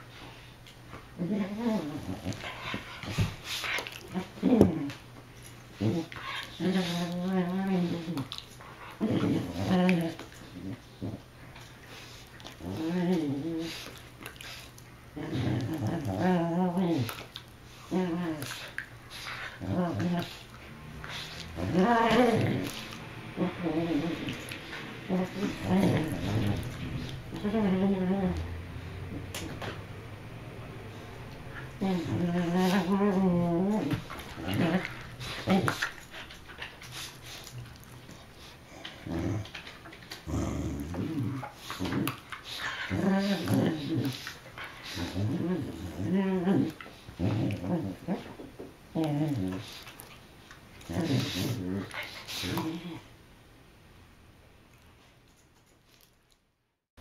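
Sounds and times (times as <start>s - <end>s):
dogs play-growling: 0.0s - 53.2s
dog whining: 19.3s - 29.7s.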